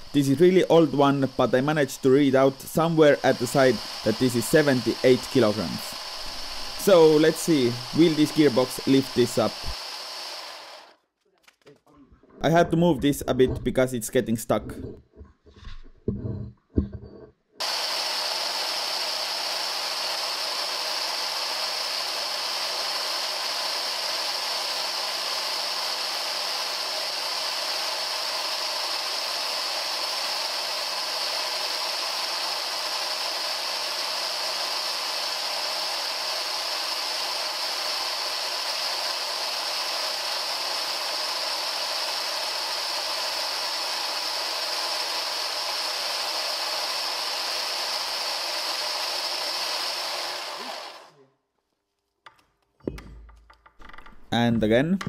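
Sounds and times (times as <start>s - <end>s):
motors and gears whirring: 0.0s - 11.0s, 17.6s - 51.1s.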